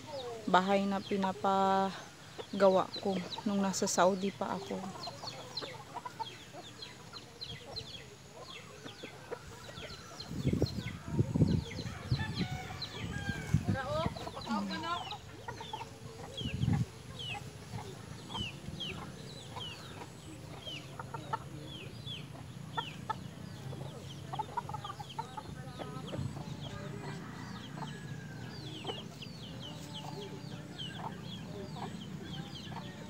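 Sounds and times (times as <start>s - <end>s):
chickens clucking: 0.0s - 33.0s
chicks peeping: 0.0s - 33.0s.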